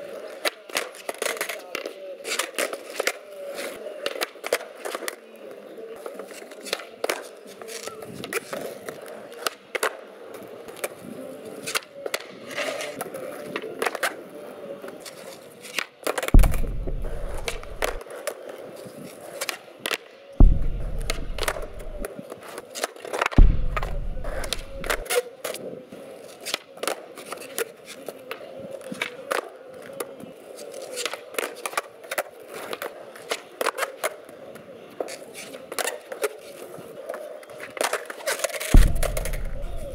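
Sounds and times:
skateboard clacks: 0.0s - 39.9s
skateboard wheels rolling: 0.0s - 39.9s
heavy skateboard landings: 16.3s - 18.0s, 20.4s - 22.1s, 23.4s - 25.0s, 38.7s - 39.9s.

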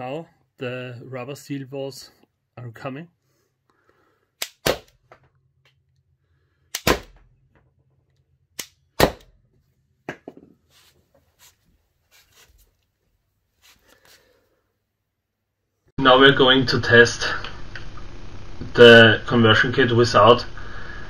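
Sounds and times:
air pistol shot pop: 6.8s - 7.2s.

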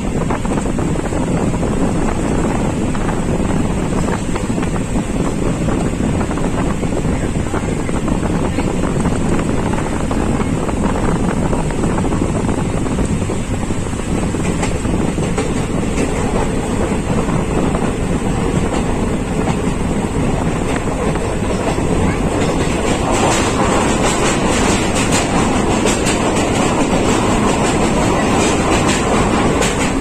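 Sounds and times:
moving train rumbling: 0.0s - 30.0s
wind buffeting microphone: 0.0s - 30.0s.

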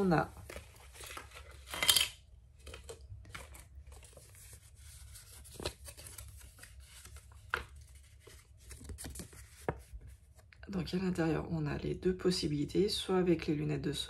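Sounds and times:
packaging rustling: 0.3s - 1.8s, 2.5s - 10.3s.

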